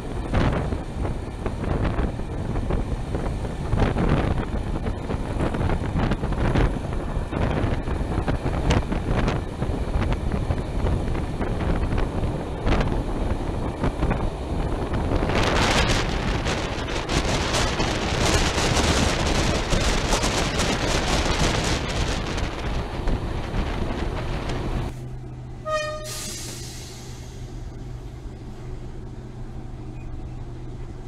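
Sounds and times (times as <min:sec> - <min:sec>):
wind buffeting microphone: 0:00.0 - 0:25.0
train coaches rumbling on track: 0:00.0 - 0:31.0
low hum: 0:22.4 - 0:31.0.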